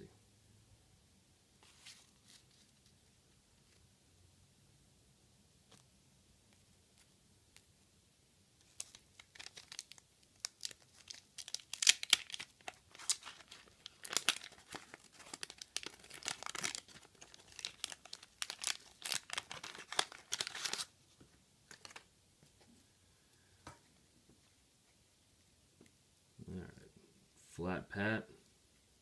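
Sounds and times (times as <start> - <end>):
wax paper tearing and crinkling: 8.7 - 20.9.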